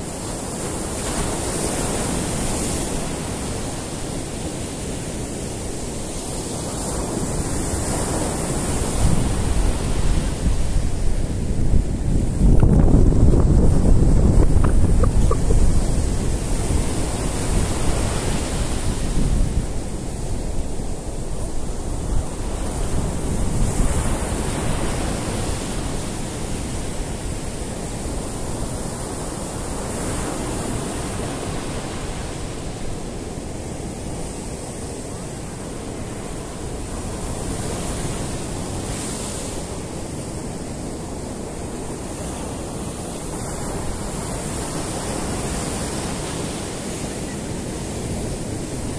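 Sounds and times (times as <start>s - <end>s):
surf breaking on beach: 0.0s - 33.2s.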